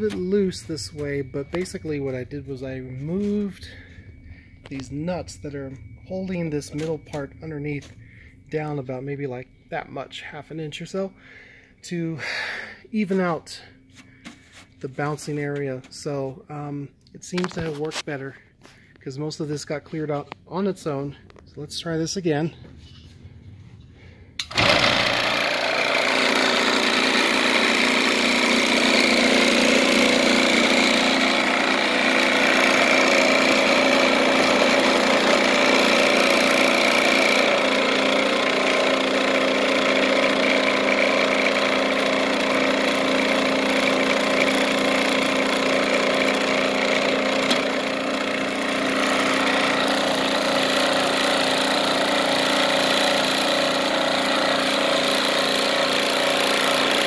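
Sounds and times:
vibratory tumbler buzzing: 0:00.0 - 0:08.7, 0:24.5 - 0:57.0.

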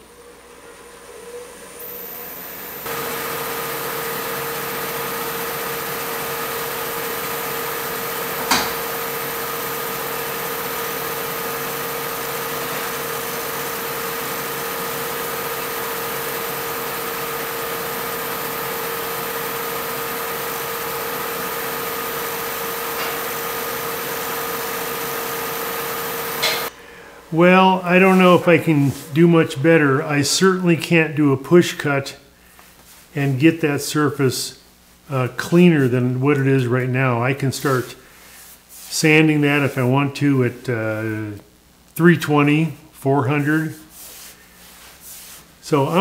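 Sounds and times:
wood lathe motor whine: 0:00.0 - 0:26.7
sharp click: 0:26.4 - 0:26.7
scraper hissing on wood: 0:37.8 - 0:39.8, 0:43.7 - 0:45.6.

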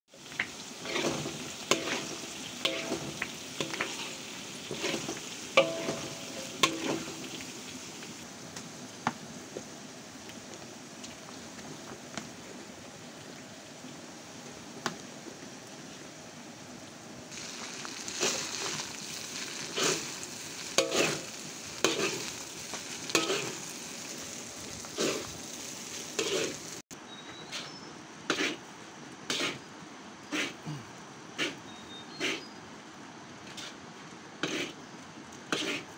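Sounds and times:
rice sizzling in a wok: 0:00.1 - 0:26.9, 0:27.5 - 0:28.6, 0:29.2 - 0:30.8, 0:31.4 - 0:32.4, 0:33.4 - 0:33.8, 0:34.4 - 0:35.9
spatula scraping a wok: 0:00.3 - 0:07.5, 0:18.0 - 0:23.8, 0:24.8 - 0:26.8, 0:27.5 - 0:28.6, 0:29.3 - 0:29.6, 0:30.2 - 0:30.6, 0:31.4 - 0:32.6, 0:33.5 - 0:33.8, 0:34.4 - 0:34.8, 0:35.5 - 0:35.9.

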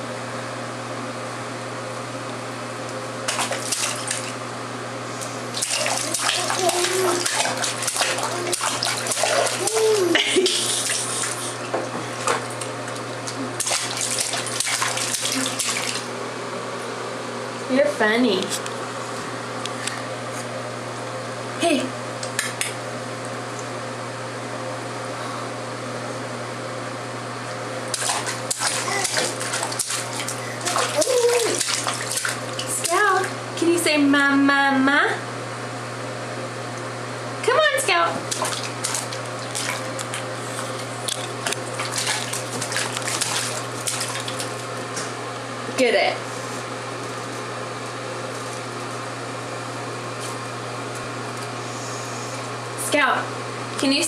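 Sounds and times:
steady low hum: 0:00.0 - 0:54.0
hands splashing bath water: 0:03.2 - 0:04.4, 0:05.5 - 0:16.1, 0:27.9 - 0:33.2, 0:38.3 - 0:45.0
baby babbling: 0:06.0 - 0:07.3, 0:09.6 - 0:10.2, 0:28.8 - 0:29.4, 0:30.6 - 0:31.6.

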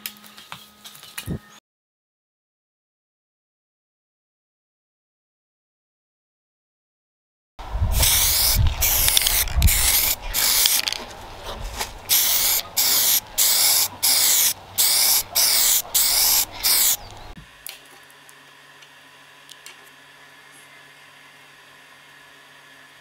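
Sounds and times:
spray paint hissing: 0:07.9 - 0:11.0, 0:12.1 - 0:17.4.

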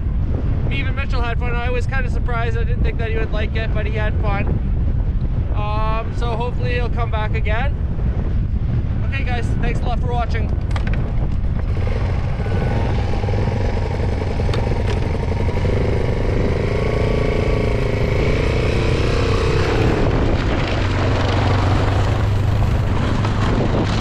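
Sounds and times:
wind noise: 0:00.0 - 0:24.0
small motorbike engine: 0:10.8 - 0:24.0.

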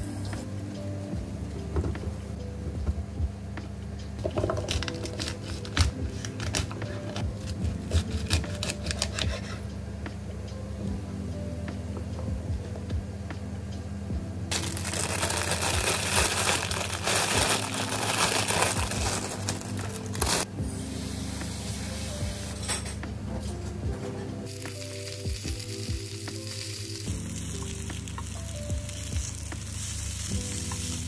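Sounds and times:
background music: 0:00.0 - 0:31.0
vegetables sizzling in a frying pan: 0:24.5 - 0:31.0.

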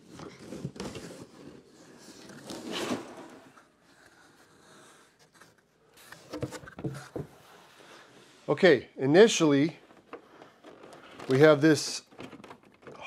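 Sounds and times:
cardboard flaps scraping: 0:00.0 - 0:08.1.

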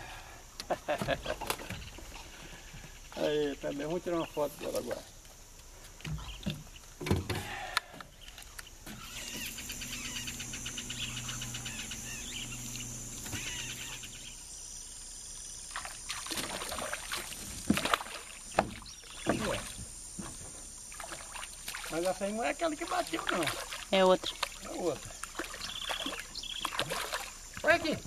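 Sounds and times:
electric trolling motor humming: 0:08.8 - 0:20.2.

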